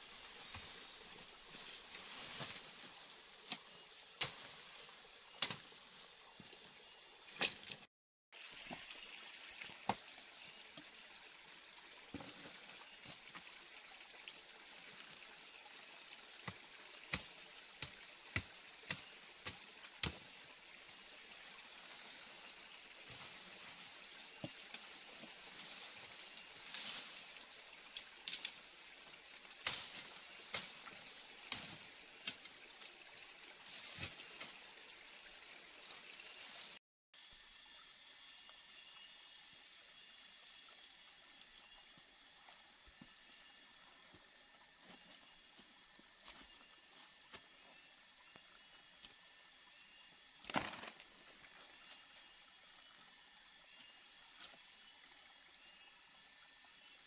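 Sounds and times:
forest stream trickling: 0.0s - 57.0s
twigs snapping and leaves rustling: 50.4s - 51.1s.

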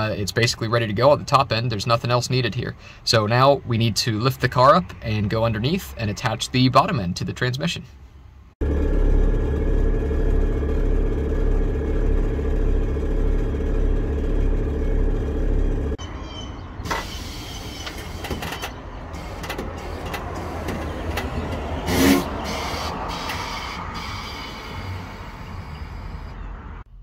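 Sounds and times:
pulsing motor hum: 8.6s - 16.0s.

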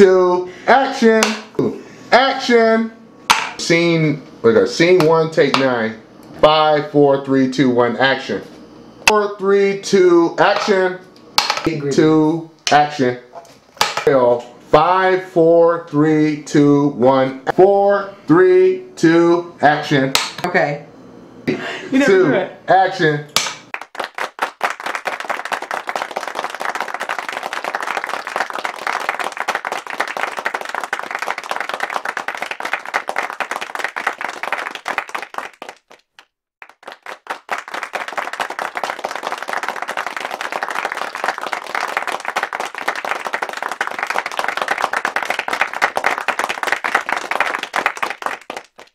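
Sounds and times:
crowd applause: 23.8s - 36.0s, 36.6s - 48.9s.

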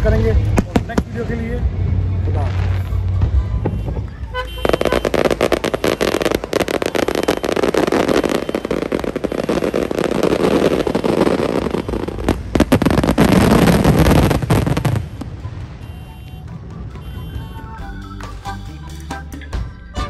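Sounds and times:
fireworks crackling and banging: 0.0s - 18.4s
music: 15.3s - 20.0s.

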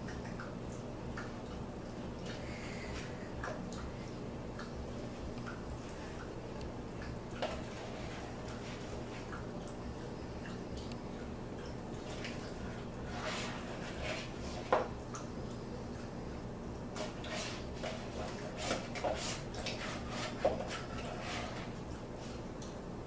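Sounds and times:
steady low hum: 0.0s - 23.0s
spoon scraping ice cream carton: 17.0s - 21.8s.

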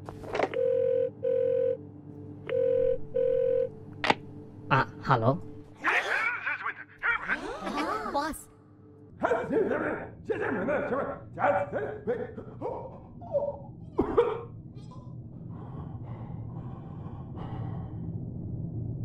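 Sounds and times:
low hum: 0.0s - 5.8s, 11.2s - 19.0s.

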